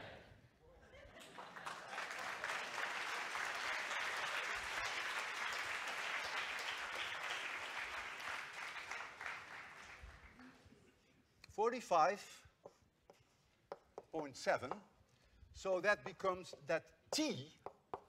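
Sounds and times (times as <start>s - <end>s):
audience applauding: 1.1s - 10.4s.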